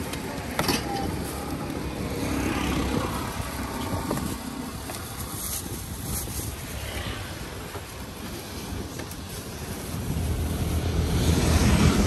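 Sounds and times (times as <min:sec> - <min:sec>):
traffic low rumble: 0:00.0 - 0:12.0
vehicle passing: 0:09.8 - 0:12.0.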